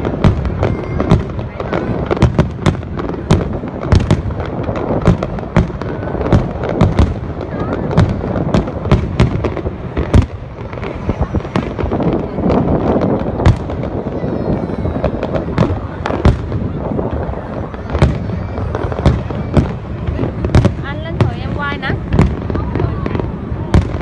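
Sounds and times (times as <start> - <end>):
constant din: 0.0 - 24.0
fireworks bangs and crackles: 0.0 - 24.0.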